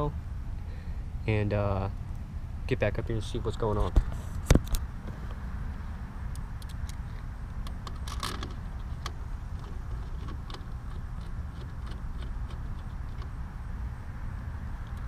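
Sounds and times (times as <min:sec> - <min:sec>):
camera handling rumble: 0:03.7 - 0:05.4, 0:06.3 - 0:13.4.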